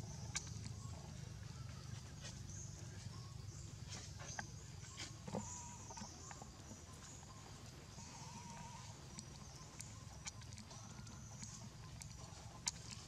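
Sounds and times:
faint high calls: 5.3 - 6.3, 7.3 - 12.4.

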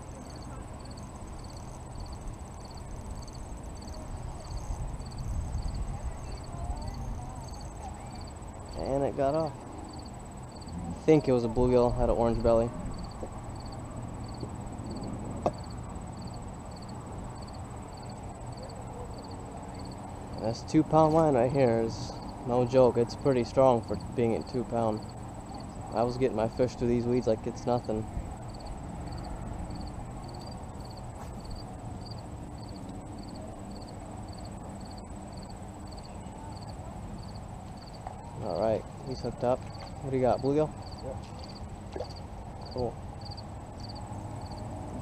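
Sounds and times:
cricket chirping: 0.0 - 45.0
high insect whine: 0.0 - 45.0
wind rumble on microphone: 2.0 - 8.0.

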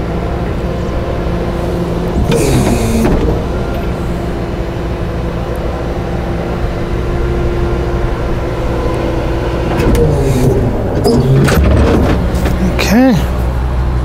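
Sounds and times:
truck engine running steadily: 0.0 - 14.0.

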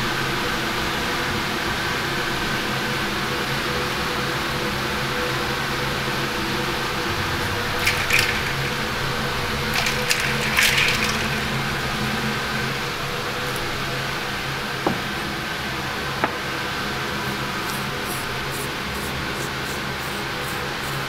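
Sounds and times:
ventilation fan hum: 0.0 - 21.0
short clicks and clatters: 7.3 - 12.6.

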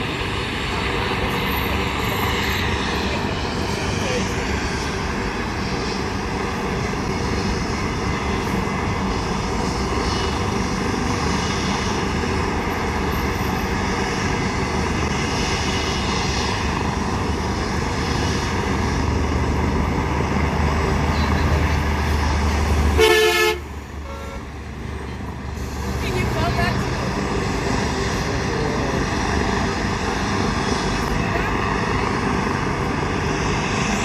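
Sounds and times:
helicopter turbines running: 0.0 - 22.9, 24.5 - 34.0
highway traffic noise: 0.0 - 34.0
vehicle horn toot: 23.0 - 24.4.

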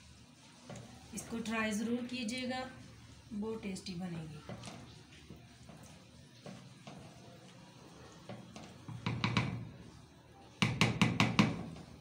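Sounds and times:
wooden spoon knocking on metal pot: 8.2 - 10.0, 10.6 - 12.0.

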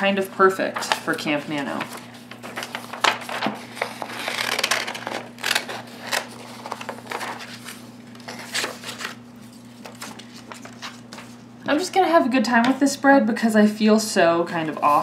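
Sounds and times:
paper rustling: 0.6 - 11.5
scissors snipping paper: 2.6 - 7.4.

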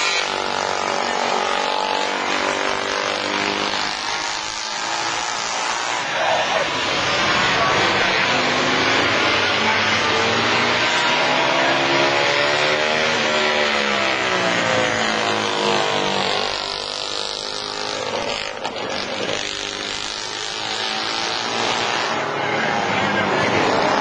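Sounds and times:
motorcycles revving past: 0.0 - 24.0.

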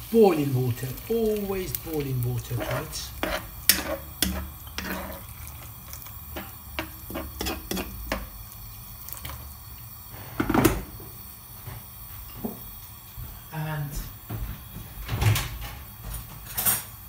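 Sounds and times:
spoon scraping against pan: 1.7 - 8.4
spoon knocking pan: 2.6 - 5.2, 6.3 - 8.4.

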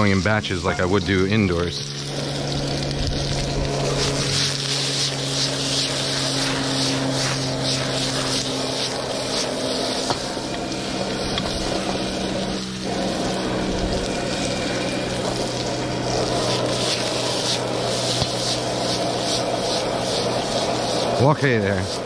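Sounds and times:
gas burner humming: 0.0 - 22.0
vegetables sizzling in a wok: 0.0 - 22.0
wooden spatula scraping a wok: 16.2 - 22.0.

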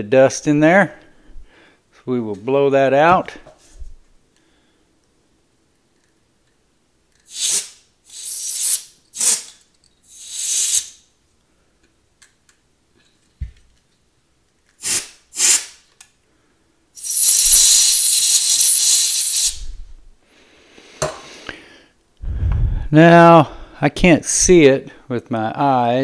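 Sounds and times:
compressed air hissing: 7.3 - 11.0, 14.8 - 15.8, 17.0 - 19.9.

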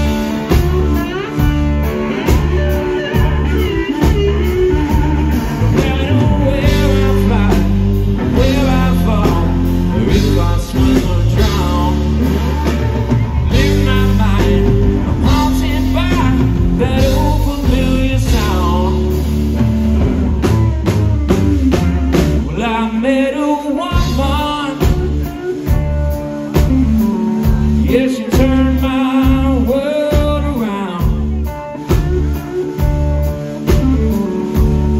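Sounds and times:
guitar bending notes: 0.0 - 23.0, 30.9 - 34.9
blues-rock band playing: 0.0 - 34.9.

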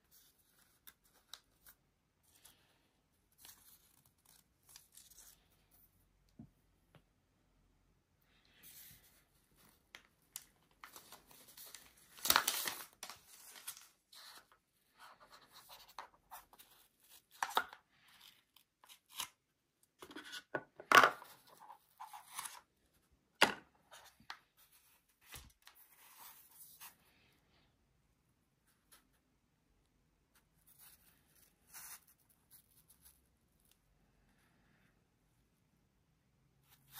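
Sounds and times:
packaging tearing and rustling: 10.4 - 13.9.

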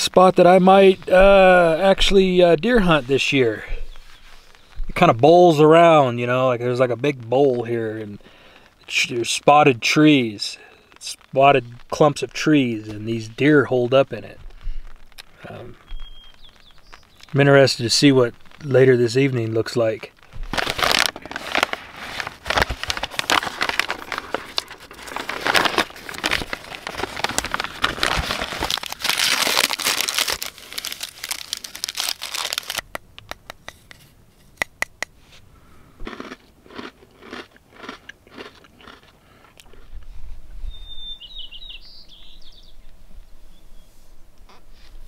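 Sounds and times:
paper wrapper crinkling and tearing: 16.0 - 33.8.

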